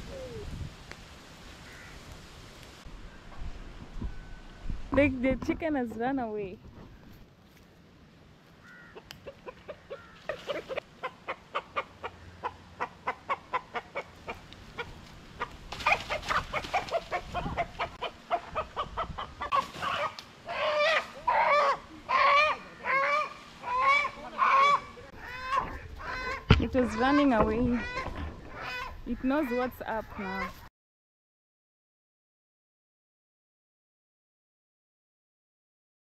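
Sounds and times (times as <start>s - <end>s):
chicken squawking: 8.9s - 30.7s
chicken clucking: 9.0s - 30.6s.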